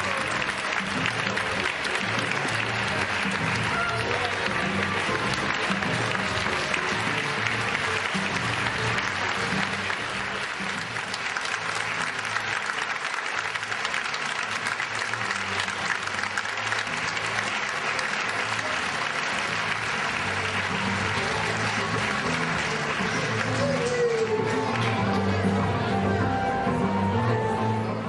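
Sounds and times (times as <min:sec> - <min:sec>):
audience applauding: 0:00.0 - 0:26.0.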